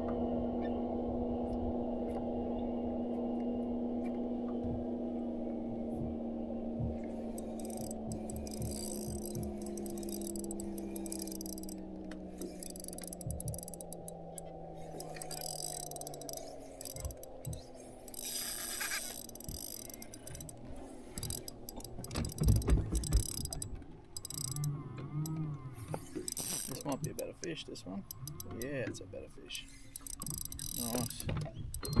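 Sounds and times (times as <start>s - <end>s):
low hum sliding down: 0.0s - 27.2s
fishing reel whirring: 7.1s - 28.8s, 29.6s - 32.0s
rod and reel handling knocks: 7.3s - 20.6s, 21.2s - 27.3s, 30.0s - 32.0s.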